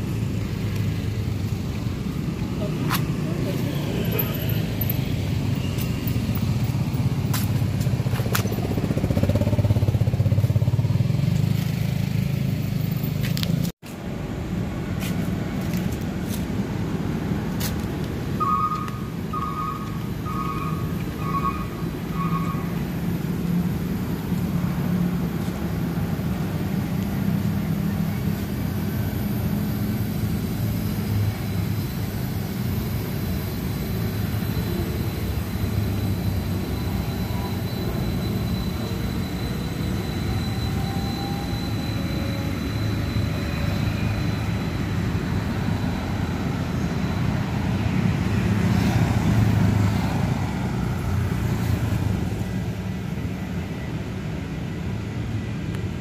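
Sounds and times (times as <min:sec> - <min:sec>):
road traffic: 0:00.0 - 0:56.0
faint high whine: 0:14.1 - 0:56.0
tram rolling past on track: 0:22.8 - 0:53.4.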